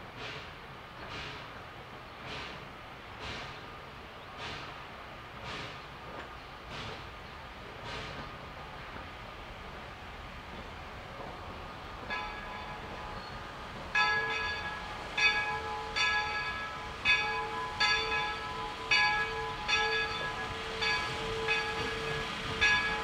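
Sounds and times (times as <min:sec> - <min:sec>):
locomotive bell ringing: 0:12.0 - 0:13.1, 0:13.9 - 0:23.0.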